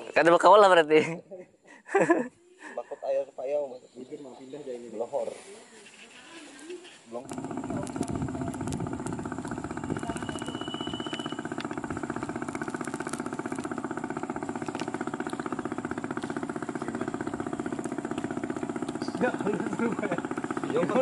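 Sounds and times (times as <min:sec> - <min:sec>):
small engine running: 0:06.8 - 0:21.0.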